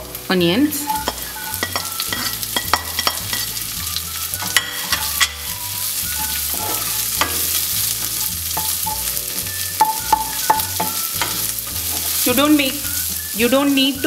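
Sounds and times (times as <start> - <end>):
onions sizzling in hot oil: 0.0 - 14.0
spatula clicking and scraping pan: 0.8 - 3.6, 4.4 - 5.6, 6.2 - 12.3.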